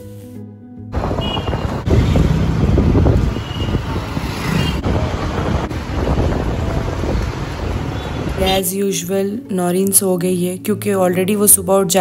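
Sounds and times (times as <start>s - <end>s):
road traffic: 0.9s - 9.0s
wind buffeting microphone: 1.0s - 8.5s
vehicle rumble: 1.0s - 8.6s.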